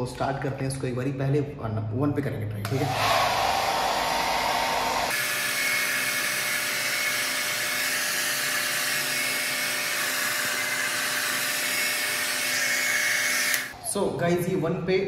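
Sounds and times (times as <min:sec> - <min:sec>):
hair dryer running: 0:02.6 - 0:13.8.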